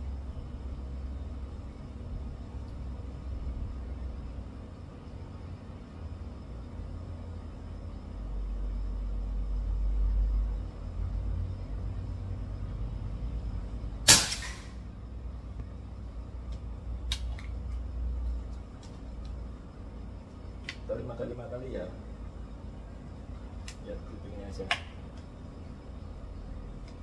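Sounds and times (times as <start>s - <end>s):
air rifle shot: 14.0s - 14.8s.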